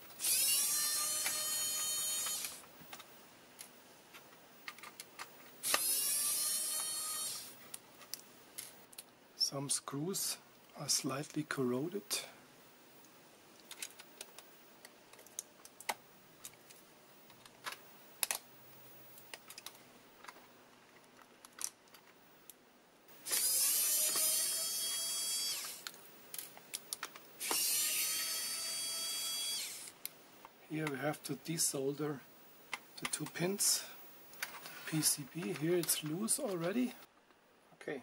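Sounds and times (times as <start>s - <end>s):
electric screwdriver running: 0.2s - 2.6s, 5.6s - 7.6s, 23.2s - 25.9s, 27.4s - 30.0s
small parts clicking and tapping: 2.2s - 5.9s, 13.0s - 18.5s, 19.1s - 22.6s, 23.3s - 27.7s.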